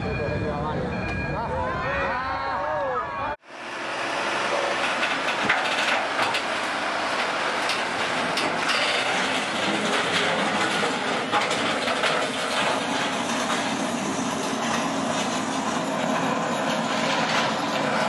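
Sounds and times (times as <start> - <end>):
crane mechanical rushing noise: 3.5 - 18.0
metal clanks and clicks: 7.6 - 13.6.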